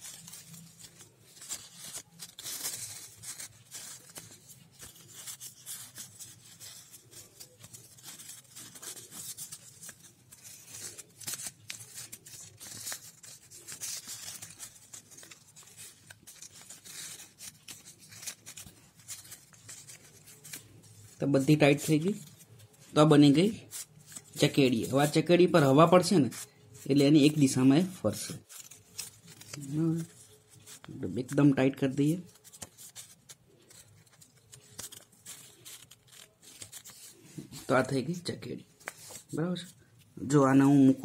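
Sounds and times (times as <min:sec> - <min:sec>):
paper rustling and crinkling: 0:00.0 - 0:40.2.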